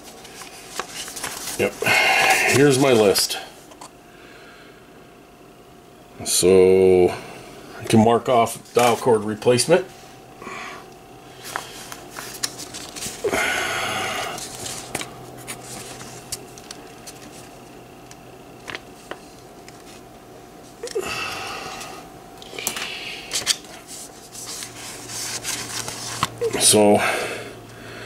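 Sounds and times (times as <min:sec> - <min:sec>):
faint steady hum: 0:00.0 - 0:28.0
paper rustling: 0:00.1 - 0:03.2, 0:11.4 - 0:13.3, 0:14.4 - 0:17.6, 0:23.3 - 0:26.3.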